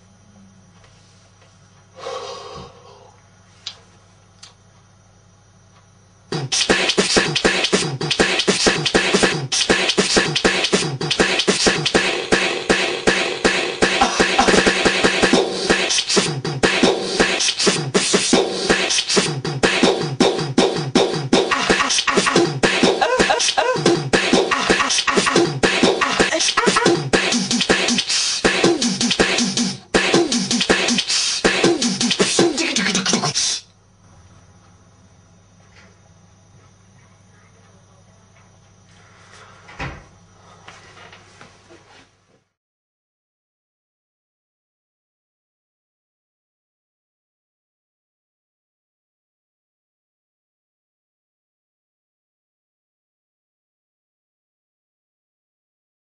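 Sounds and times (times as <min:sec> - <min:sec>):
faint low hum: 0:00.0 - 0:06.5, 0:33.7 - 0:42.3
beatboxing: 0:06.3 - 0:33.7.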